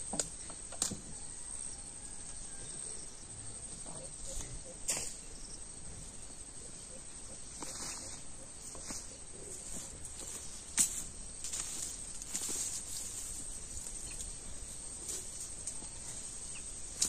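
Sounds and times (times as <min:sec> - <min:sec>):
insects chirring: 0:00.0 - 0:17.0
rustles: 0:03.7 - 0:17.0.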